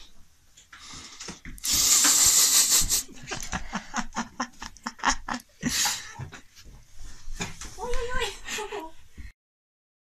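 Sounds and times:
person laughing: 1.9s - 6.5s.

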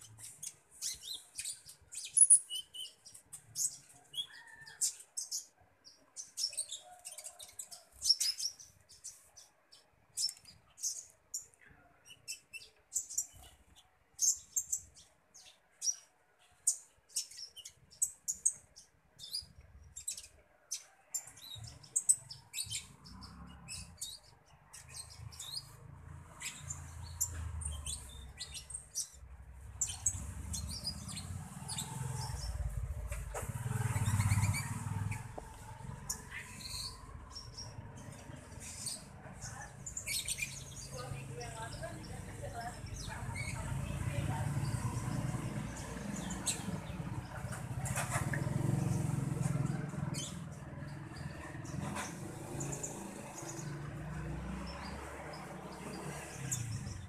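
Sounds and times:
songbird chirping: 0.0s - 57.0s.

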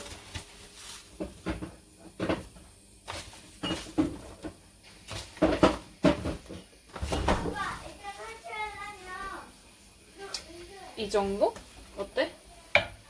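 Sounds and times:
cookware knocks and clunks: 5.4s - 7.5s.

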